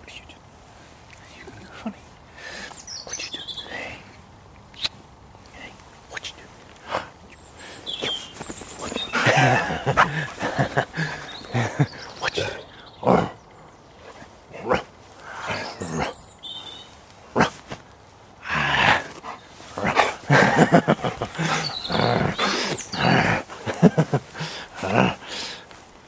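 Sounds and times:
dog growling: 0:08.8 - 0:13.4, 0:18.4 - 0:25.4.

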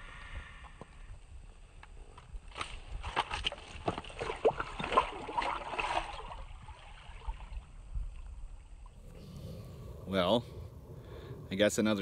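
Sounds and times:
fish splashing in water: 0:03.0 - 0:07.6.

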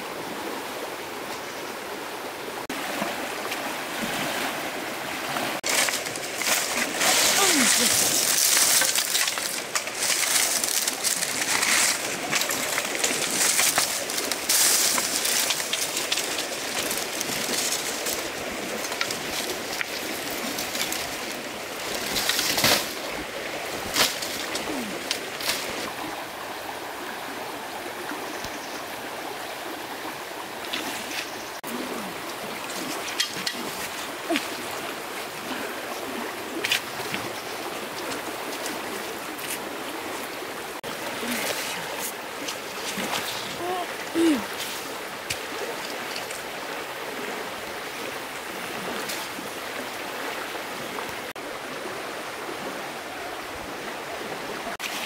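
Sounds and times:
stream water splashing: 0:00.0 - 0:55.0.

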